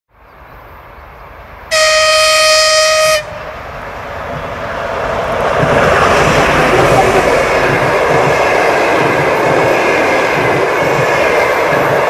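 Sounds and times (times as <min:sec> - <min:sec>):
train rumbling: 0:00.2 - 0:12.0
locomotive horn blast: 0:01.7 - 0:03.6.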